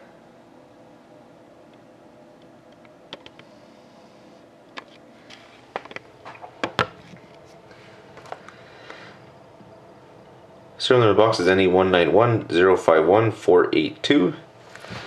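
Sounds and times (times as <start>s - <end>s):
clicks and knocks of handling: 4.7s - 7.2s.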